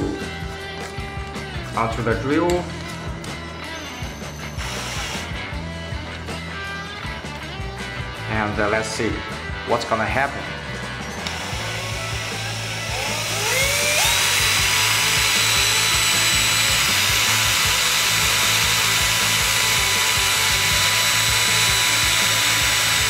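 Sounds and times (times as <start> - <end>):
drill whine: 3.6 - 6.1, 11.0 - 23.0.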